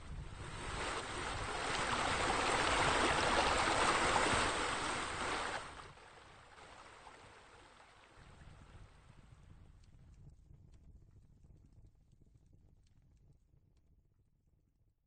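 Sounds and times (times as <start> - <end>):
water rushing and splashing: 0.0 - 8.2.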